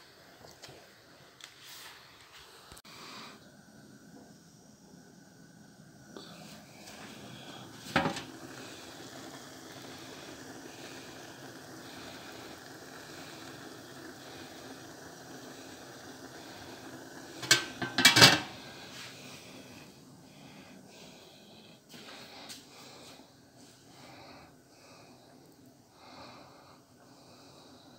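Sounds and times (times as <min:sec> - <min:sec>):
faint hiss from cooking pot: 0:00.0 - 0:27.9
metal pot lid clattering: 0:07.9 - 0:08.3, 0:17.4 - 0:18.6.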